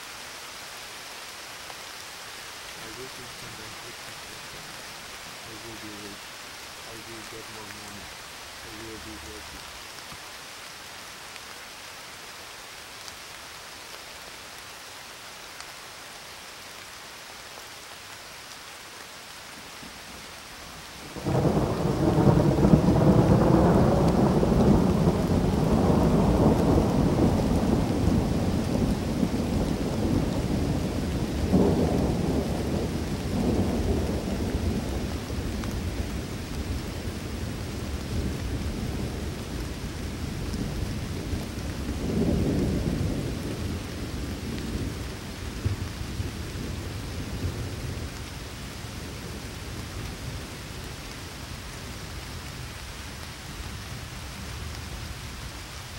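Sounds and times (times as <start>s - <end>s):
steady rain hissing: 0.0s - 55.9s
thunder rumbling: 21.1s - 48.2s.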